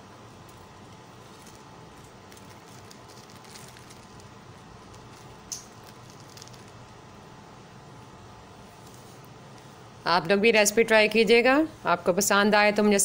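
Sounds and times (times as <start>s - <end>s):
steady low hiss: 0.0s - 13.0s
fried food crackling on a plate: 0.4s - 7.2s.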